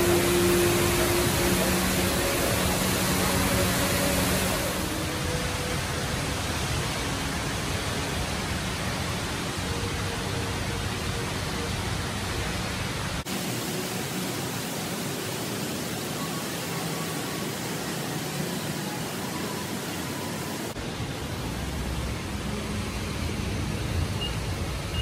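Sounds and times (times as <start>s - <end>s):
falling water rushing: 0.0s - 25.0s.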